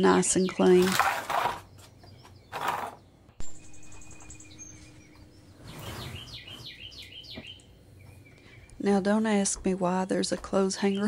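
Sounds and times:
birds chirping and singing: 0.0 - 11.0.

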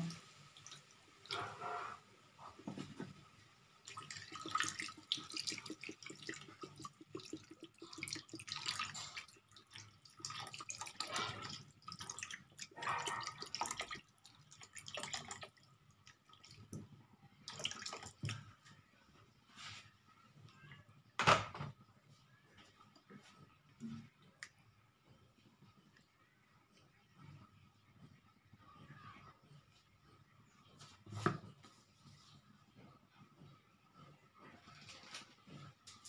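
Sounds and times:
water pouring and splashing: 0.0 - 18.8.

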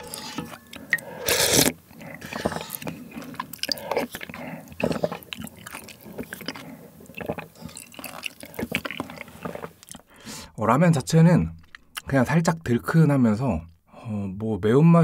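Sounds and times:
loud slurp of broth: 0.0 - 9.8
chewing: 0.0 - 10.1, 11.6 - 12.0
small mouth sounds: 0.8 - 10.1.

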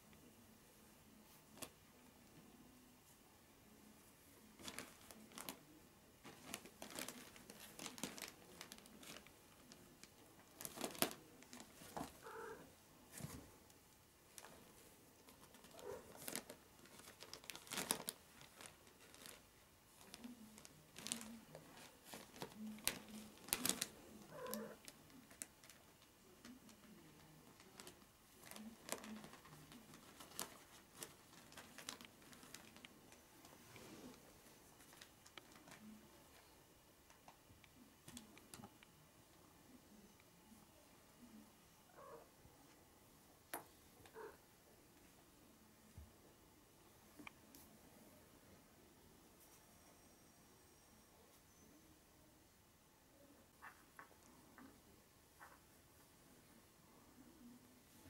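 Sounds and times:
crumpled paper crinkling: 4.6 - 12.5, 15.3 - 33.2, 34.0 - 36.0
soft cat sound: 10.9 - 13.2, 15.5 - 16.6, 20.2 - 25.4, 39.9 - 42.6, 44.0 - 44.6.

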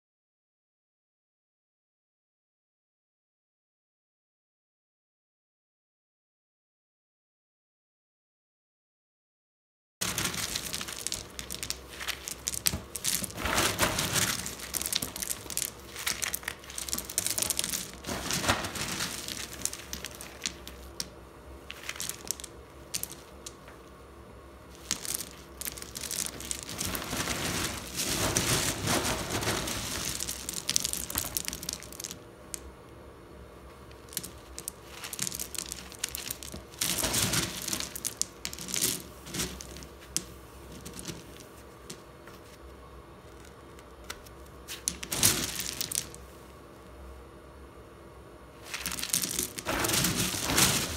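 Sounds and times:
coal lumps clattering in sack: 10.0 - 23.8, 24.7 - 32.6, 33.9 - 42.0, 44.6 - 46.2, 48.6 - 50.9.

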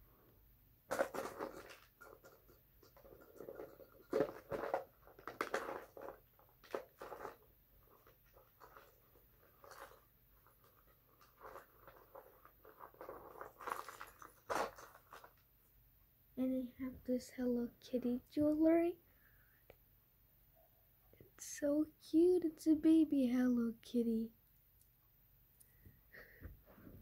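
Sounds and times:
jewelry rattling in plastic tub: 0.9 - 15.4.

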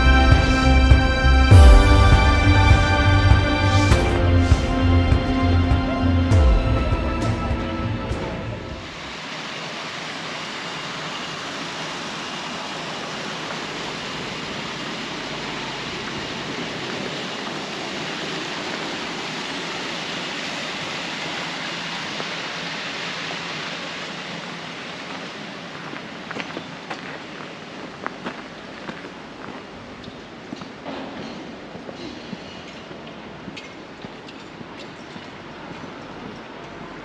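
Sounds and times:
music: 0.0 - 8.9
flowing water rushing: 0.0 - 37.0.

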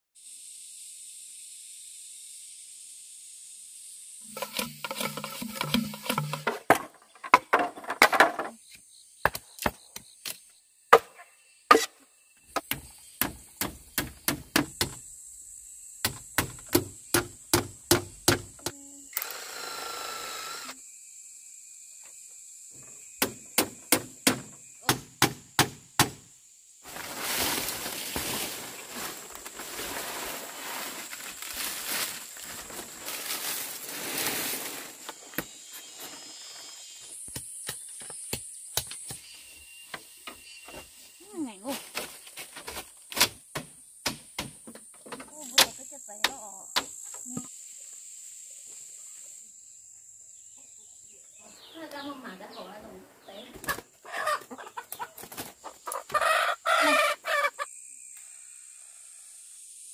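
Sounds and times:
tool striking wood: 4.3 - 8.2, 12.5 - 15.0, 16.0 - 18.8, 23.2 - 26.2.

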